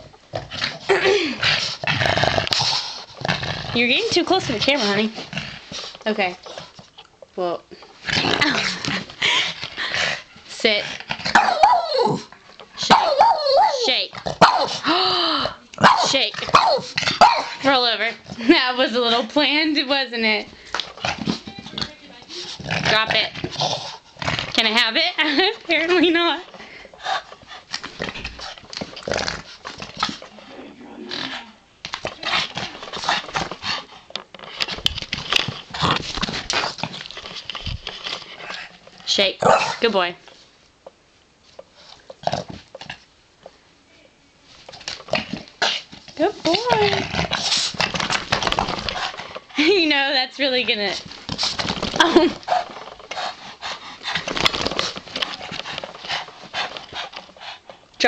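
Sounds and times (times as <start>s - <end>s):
dog play noises and breathing: 0.0s - 40.7s, 41.4s - 43.7s, 44.4s - 58.0s
dog scuffling with rope toy: 31.9s - 39.2s, 44.5s - 57.8s.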